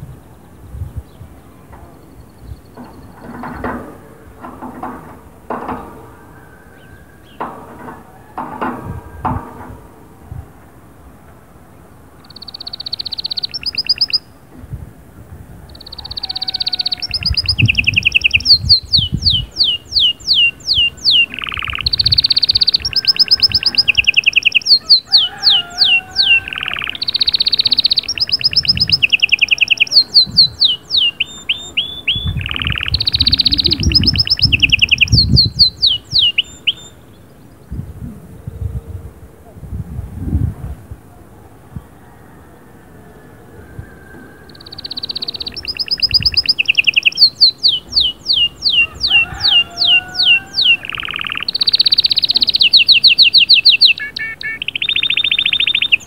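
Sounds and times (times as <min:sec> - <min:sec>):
canary singing: 0:12.2 - 0:14.4, 0:15.7 - 0:37.6, 0:44.4 - 0:56.0.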